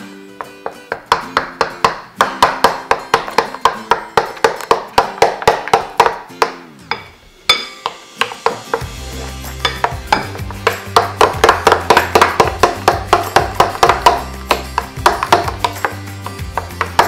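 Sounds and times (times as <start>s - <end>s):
percussive beat: 0.4s - 17.0s
bass line: 6.3s - 17.0s
falling tone: 6.5s - 8.2s.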